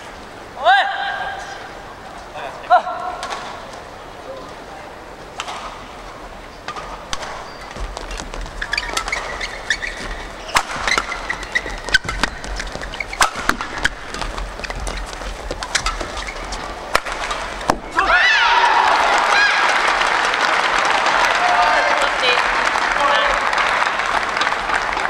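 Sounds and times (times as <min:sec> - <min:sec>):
shoes squeaking on court: 0:06.5 - 0:18.0
rackets hitting shuttlecock: 0:06.6 - 0:18.0.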